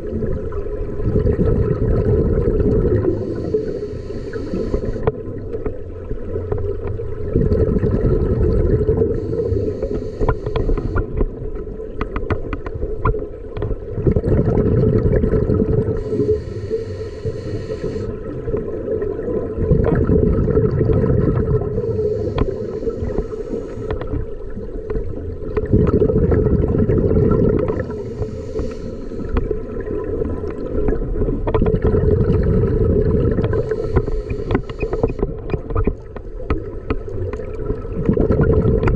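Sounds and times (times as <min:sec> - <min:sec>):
bubbling exhaled air: 0:00.0 - 0:05.5, 0:07.2 - 0:11.2, 0:13.9 - 0:36.0, 0:37.4 - 0:38.9
regulator hissing inhale: 0:03.0 - 0:05.1, 0:09.1 - 0:11.1, 0:15.9 - 0:18.2, 0:21.6 - 0:24.2, 0:27.6 - 0:29.5, 0:33.5 - 0:35.3.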